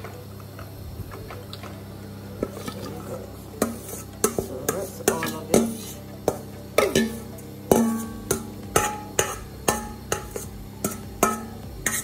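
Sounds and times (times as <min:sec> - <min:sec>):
pot knocking on frying pan: 0:03.6 - 0:12.0.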